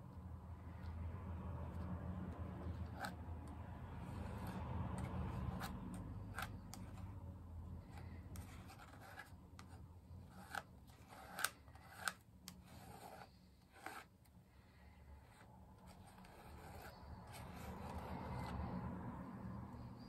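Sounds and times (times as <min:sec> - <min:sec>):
tool scraping paste on stencil: 0:01.6 - 0:07.2, 0:07.8 - 0:14.4, 0:15.1 - 0:18.9.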